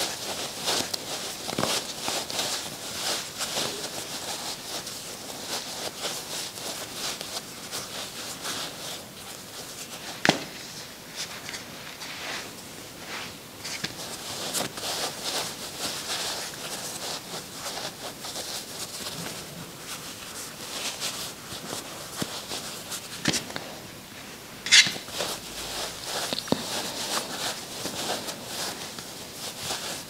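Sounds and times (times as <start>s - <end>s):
stuffing rustling: 24.7s - 30.0s.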